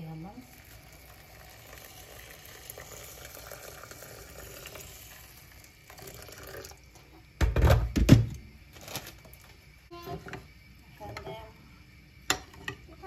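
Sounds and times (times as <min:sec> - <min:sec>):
water pouring into a bowl: 0:00.2 - 0:07.0.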